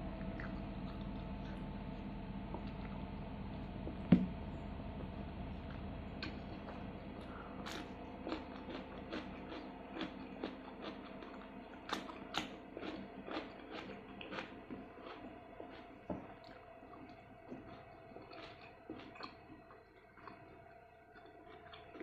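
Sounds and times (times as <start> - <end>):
person chewing food: 0.1 - 4.3, 5.0 - 22.0.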